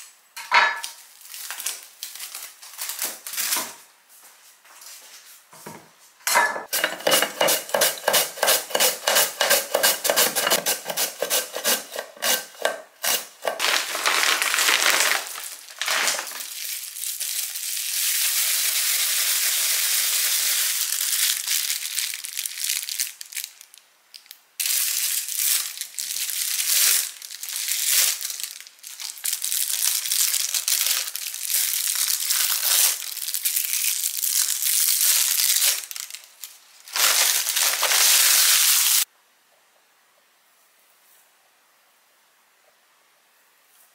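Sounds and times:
plastic film crinkling: 1.0 - 3.8, 13.4 - 39.1.

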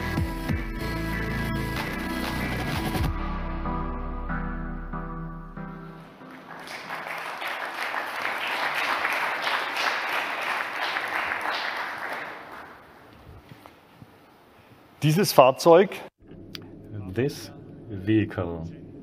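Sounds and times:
audience applauding: 6.1 - 12.9.

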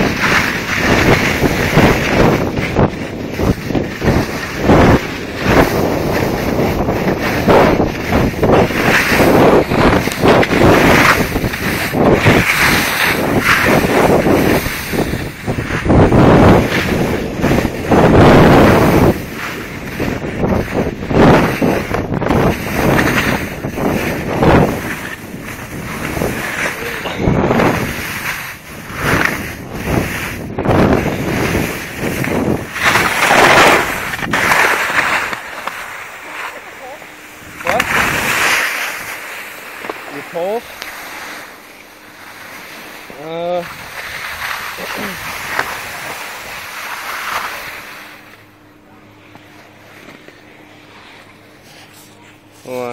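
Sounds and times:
wind buffeting microphone: 0.0 - 34.5
skis scraping over snow: 0.0 - 48.5, 49.1 - 52.9.

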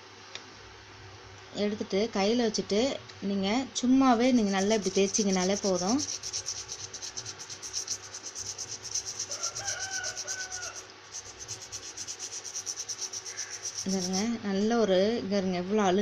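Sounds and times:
toothbrush scrubbing stove burner: 4.2 - 14.4.

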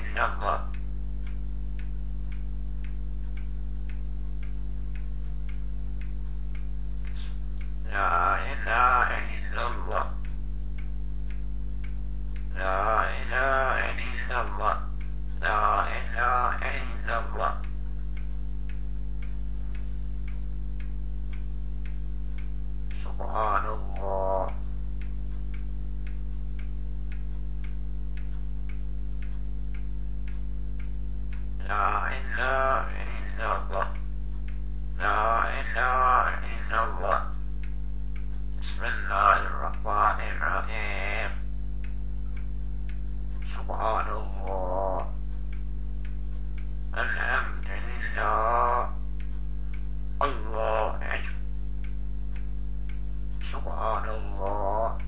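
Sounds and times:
parrot voice: 0.0 - 0.8, 7.1 - 10.3, 12.5 - 17.7, 22.9 - 24.7, 31.6 - 34.0, 35.0 - 37.4, 38.6 - 41.5, 43.4 - 45.2, 46.9 - 49.0, 50.2 - 51.5, 53.4 - 55.0
clock ticking: 0.0 - 55.0
low electrical hum: 0.0 - 55.0.

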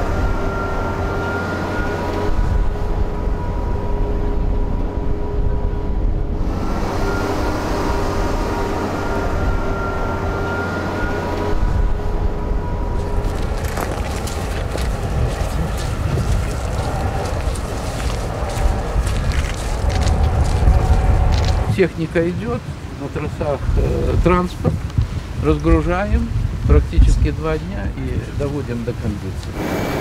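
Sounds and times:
mechanical whining tones: 0.0 - 21.8
tractor and harvester humming: 0.0 - 21.8.

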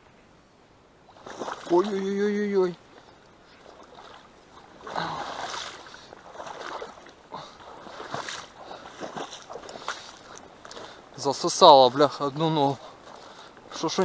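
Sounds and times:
water splashes: 1.0 - 14.0
boots sloshing through water: 1.1 - 14.0
boots sucking in mud: 3.6 - 11.0.

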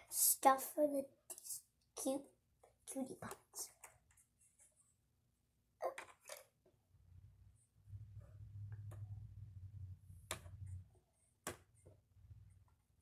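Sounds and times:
plastic toys being moved: 5.8 - 6.6.

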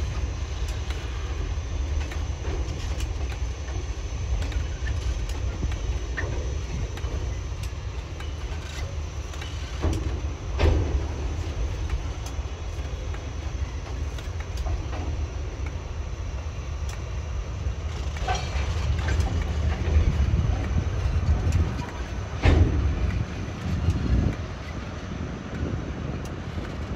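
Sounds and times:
locomotive low rumble: 0.0 - 26.9
metallic knocks and clanks: 17.9 - 24.8.

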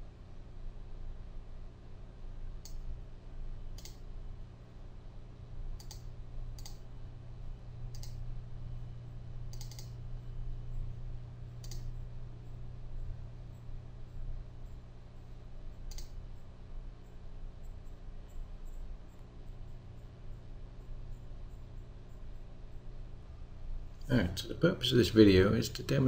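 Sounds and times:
steady low hum: 0.0 - 26.0
mouse button clicking: 9.5 - 9.9.

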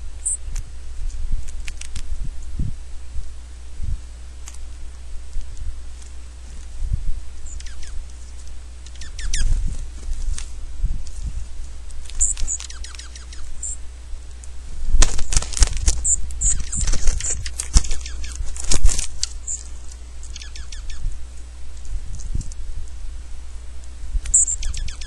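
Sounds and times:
birds chirping: 0.0 - 2.6, 3.4 - 25.0
birds tapping at feeder: 7.5 - 9.5, 11.9 - 13.8, 14.4 - 21.5, 24.2 - 25.0.

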